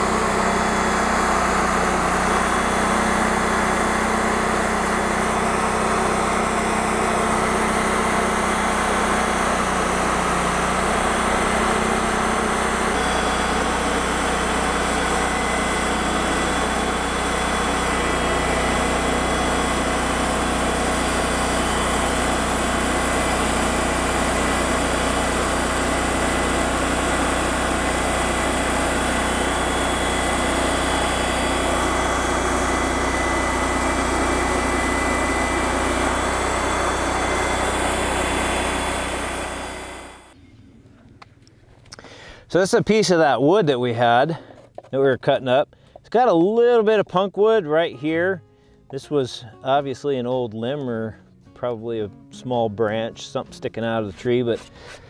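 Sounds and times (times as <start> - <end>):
bandsaw mill cutting log: 0.0 - 40.4, 52.5 - 55.0.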